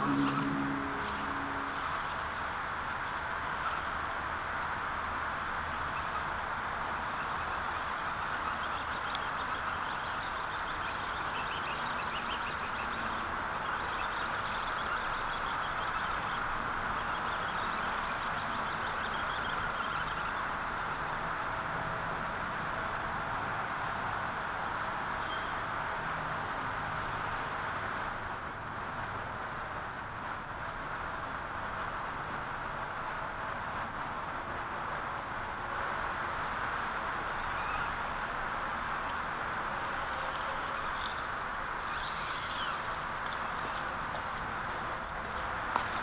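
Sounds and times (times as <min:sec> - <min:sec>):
electric motor and gears whirring: 0:00.0 - 0:04.2, 0:37.0 - 0:46.0.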